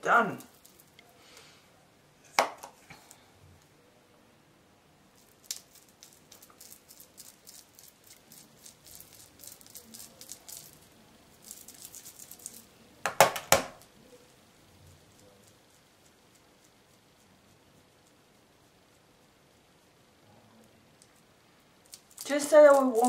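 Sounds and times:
makeup brush scratching on skin: 0:05.2 - 0:12.6, 0:14.9 - 0:20.0.

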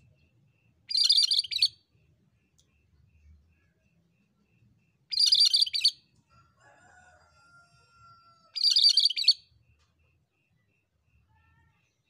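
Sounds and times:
bird chattering song: 0:00.9 - 0:01.8, 0:05.1 - 0:06.0, 0:08.6 - 0:09.4.

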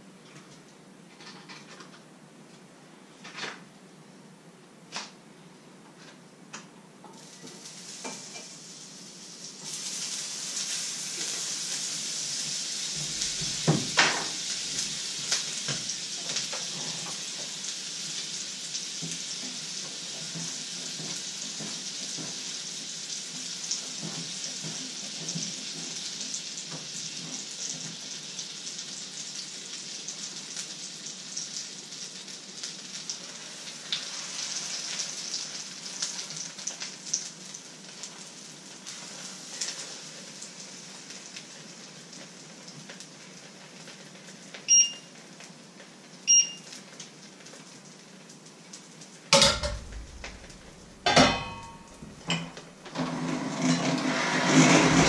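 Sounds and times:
batter sizzling in a frying pan: 0:07.1 - 0:55.0
utensils and pans clinking: 0:49.4 - 0:55.0.

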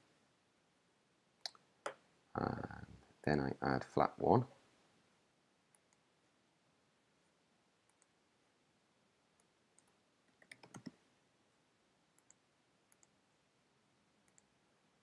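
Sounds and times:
computer mouse clicks: 0:07.9 - 0:08.2, 0:09.4 - 0:11.0, 0:12.2 - 0:13.2, 0:14.2 - 0:14.5
keyboard typing: 0:09.4 - 0:11.0.

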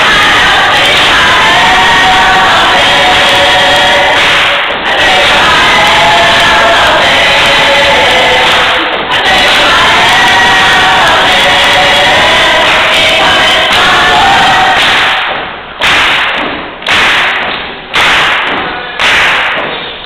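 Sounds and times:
gospel choir singing: 0:00.0 - 0:15.4
heavy thumps on the beat: 0:00.0 - 0:20.0.

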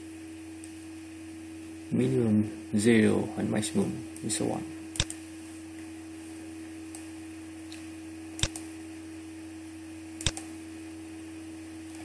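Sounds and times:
steady low hum: 0:00.0 - 0:12.0
computer mouse clicking: 0:08.4 - 0:08.6, 0:10.2 - 0:10.4.

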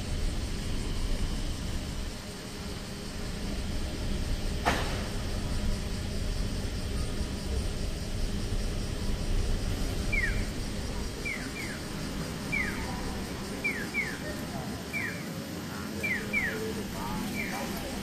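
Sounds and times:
street traffic rumble: 0:00.0 - 0:18.0
crossing signal bird-call chirps: 0:06.4 - 0:18.0.

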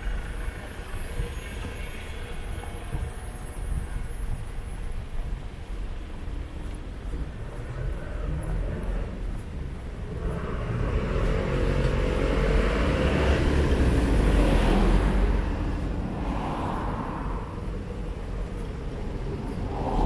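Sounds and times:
motor vehicle passing by: 0:10.1 - 0:17.8.

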